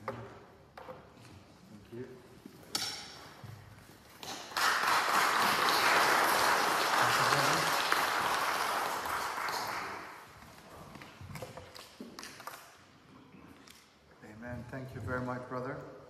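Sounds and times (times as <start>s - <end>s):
congregation applauding: 4.2s - 10.4s.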